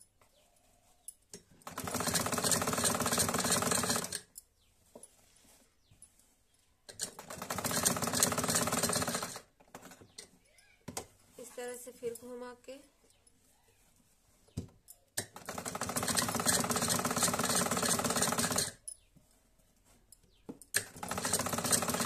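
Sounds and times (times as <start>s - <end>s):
sewing machine stitching: 1.6s - 4.3s, 6.9s - 10.1s, 15.2s - 18.8s, 20.8s - 22.0s.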